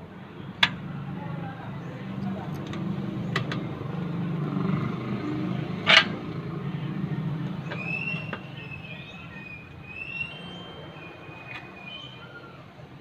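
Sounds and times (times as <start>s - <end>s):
vehicle engine rumble: 0.0s - 13.0s
high wavering whistling tone: 7.8s - 12.4s.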